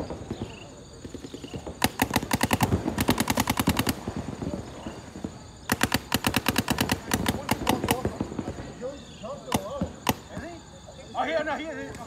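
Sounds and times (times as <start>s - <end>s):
paintball marker rapid firing: 0.4s - 4.2s, 5.6s - 8.6s, 9.5s - 10.5s.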